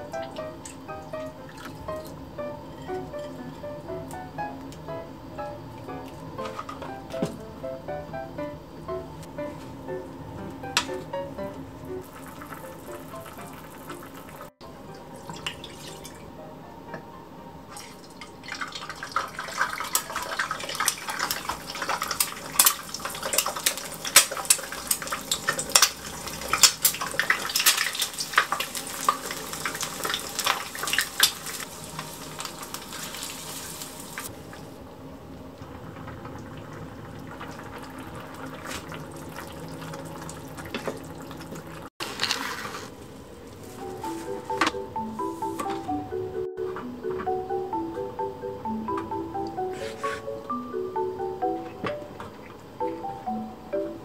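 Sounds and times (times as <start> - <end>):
egg frying in hot oil: 12.0 - 14.6, 17.8 - 34.7, 35.6 - 42.9.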